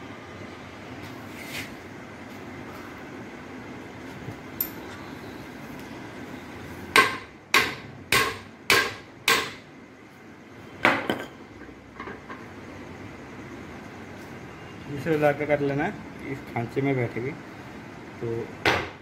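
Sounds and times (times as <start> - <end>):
hammer striking metal: 6.9 - 9.6.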